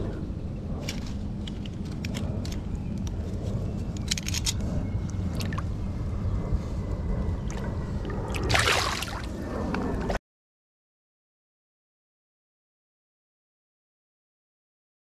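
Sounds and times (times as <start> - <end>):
steady low rumble: 0.0 - 10.2
water splashing against boat: 8.4 - 9.4.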